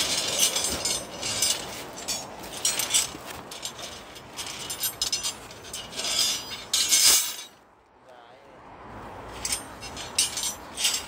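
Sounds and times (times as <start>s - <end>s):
metal rebar clinking and clattering: 0.0s - 7.6s, 9.3s - 11.0s.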